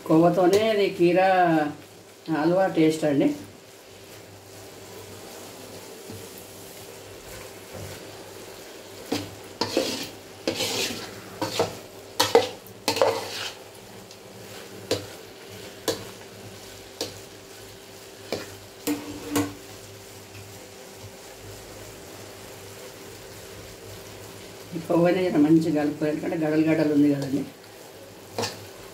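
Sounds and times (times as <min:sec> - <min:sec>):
low sizzle of cooking: 0:00.0 - 0:28.9
metal spatula scraping metal pan: 0:09.1 - 0:13.6, 0:18.3 - 0:19.6.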